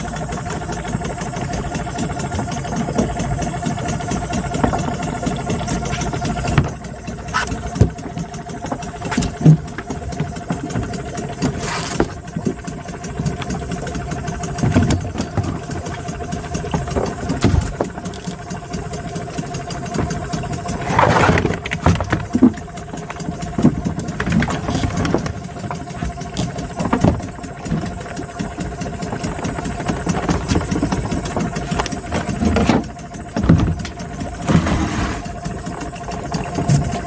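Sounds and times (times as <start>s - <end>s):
engine running steadily: 0.0s - 37.0s.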